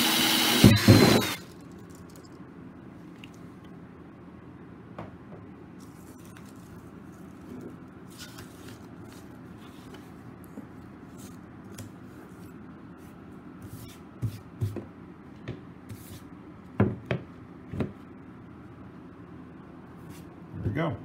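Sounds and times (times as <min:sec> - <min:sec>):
low steady hum: 0:01.0 - 0:21.0
paper rustling: 0:05.8 - 0:10.2.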